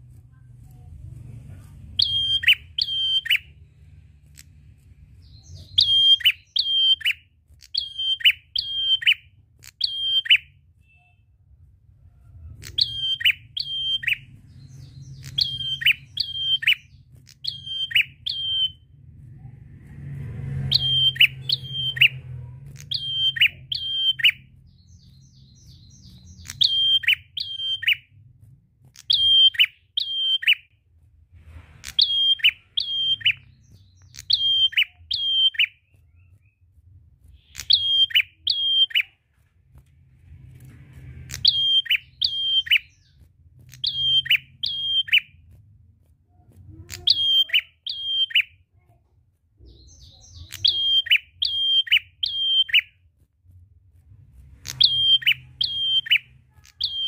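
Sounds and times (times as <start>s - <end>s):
tailorbird singing repetitive call: 2.0s - 3.5s, 5.2s - 11.2s, 12.6s - 18.8s, 20.7s - 22.2s, 22.8s - 28.0s, 29.0s - 30.6s, 31.9s - 36.4s, 37.4s - 39.2s, 41.3s - 45.3s, 46.9s - 48.6s, 49.7s - 52.9s, 54.6s - 57.0s.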